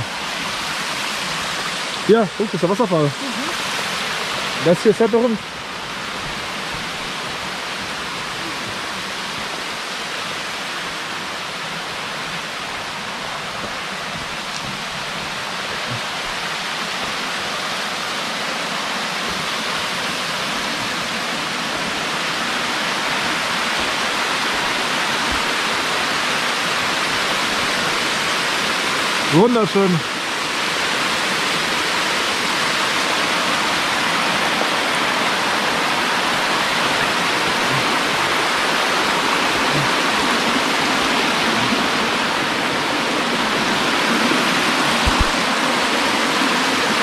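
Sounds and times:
waterfall rushing: 0.0s - 47.0s.

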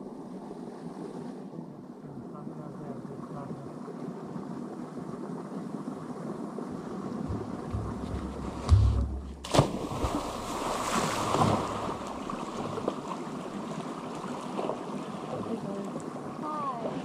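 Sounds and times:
creek water rushing: 0.0s - 17.0s
water sloshing: 6.5s - 17.0s
person plunging into water: 7.2s - 13.2s.

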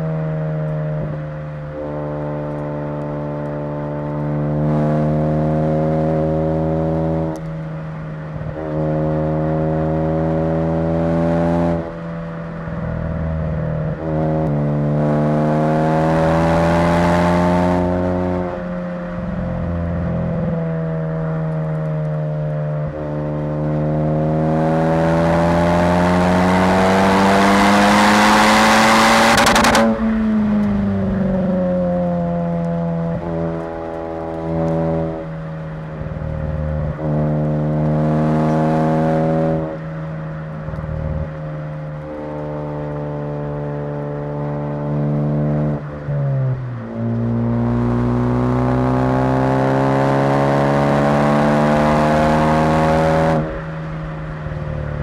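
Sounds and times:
car engine revving hard: 23.0s - 31.3s, 36.6s - 39.8s, 47.1s - 53.6s.

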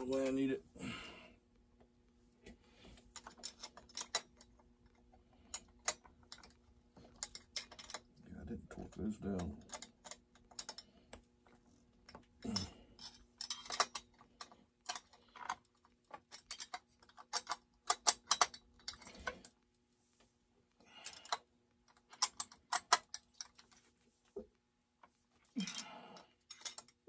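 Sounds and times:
faint steady hum: 0.0s - 27.0s
clicks and taps of tools and parts: 2.4s - 8.1s, 8.9s - 19.4s, 21.1s - 25.1s, 26.4s - 27.0s.

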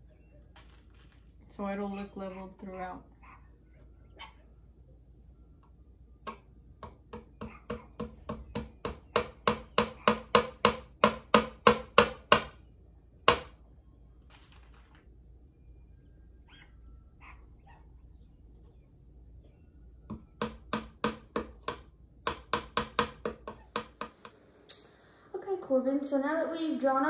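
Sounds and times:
hammer tapping nail into wood: 6.3s - 12.5s, 20.4s - 24.1s.

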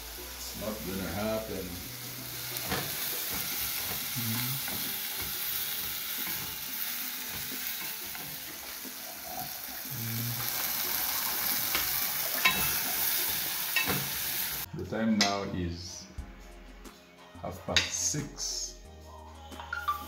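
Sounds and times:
vegetables sizzling in pot: 0.0s - 14.7s.

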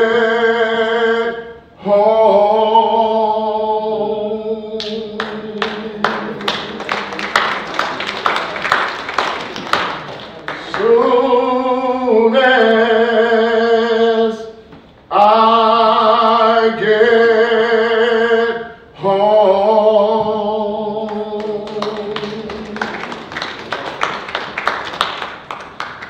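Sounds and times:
a cappella gospel singing: 0.0s - 7.6s, 10.5s - 23.2s
people clapping: 4.8s - 11.4s, 21.1s - 26.0s.

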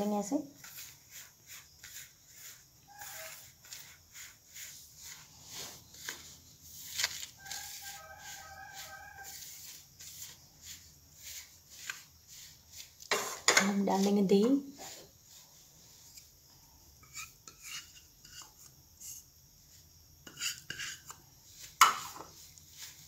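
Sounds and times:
hands rubbing dry flour mixture: 0.0s - 16.4s, 17.0s - 23.0s
rooster crowing: 2.9s - 3.6s, 7.4s - 9.7s.

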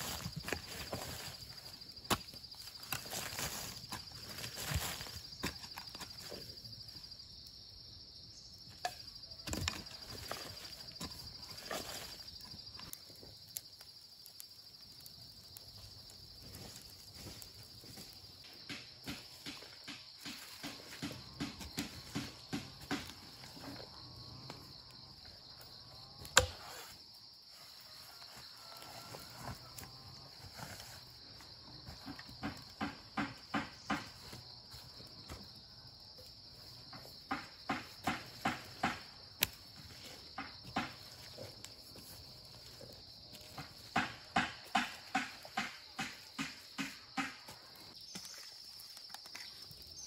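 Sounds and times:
insects chirring: 0.0s - 50.0s
hoe chopping into soil: 18.7s - 23.5s, 26.2s - 27.0s.

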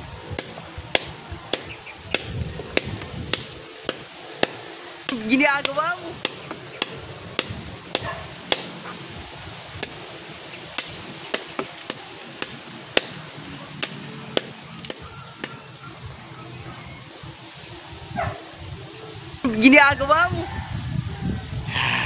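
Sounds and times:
machete chopping wood: 0.4s - 8.9s, 10.8s - 13.2s.

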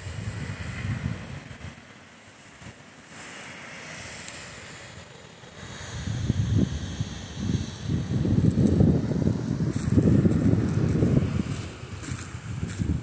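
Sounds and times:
wind buffeting microphone: 0.0s - 1.9s, 5.6s - 13.0s.

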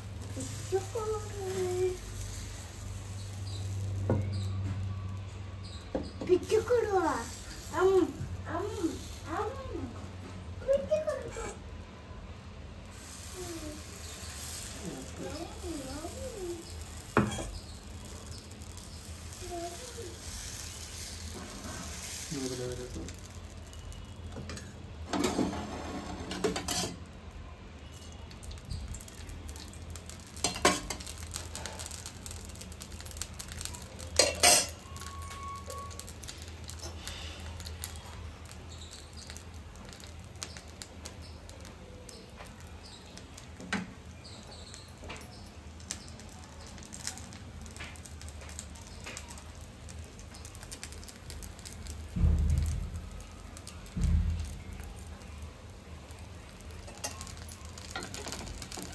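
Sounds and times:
batter sizzling: 0.0s - 58.9s
metal clinks of utensils: 34.2s - 36.0s
low thump: 52.2s - 53.0s, 54.0s - 54.5s.

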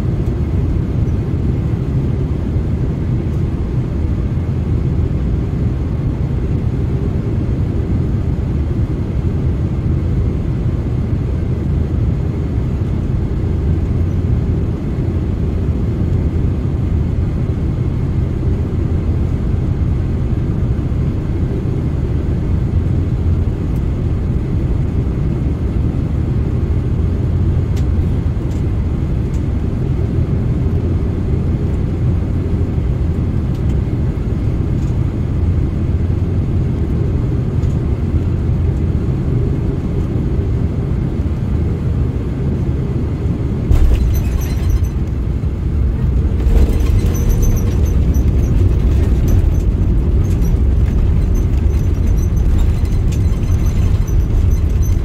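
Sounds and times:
jet engine rumble and rushing air: 0.0s - 55.0s
wheels touching down on runway: 45.9s - 55.0s.

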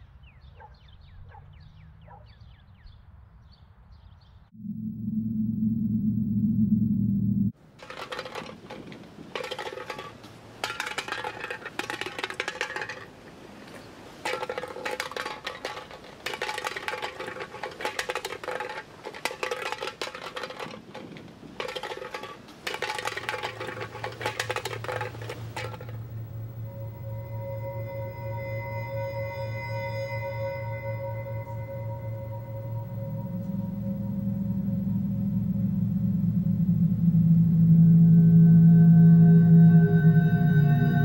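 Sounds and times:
metallic jingling: 14.3s - 37.1s.

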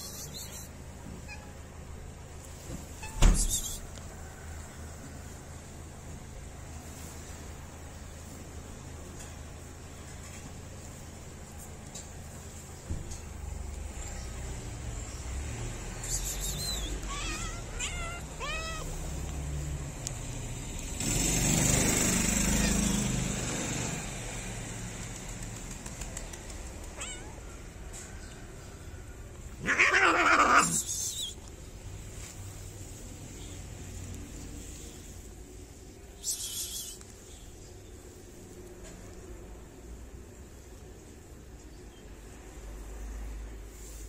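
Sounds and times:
cats meowing: 16.2s - 19.4s, 26.8s - 27.8s, 29.5s - 31.4s.

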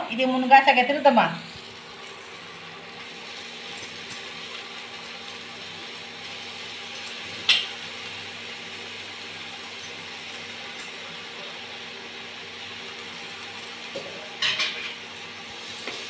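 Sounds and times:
steady sizzling hiss: 0.0s - 16.0s.

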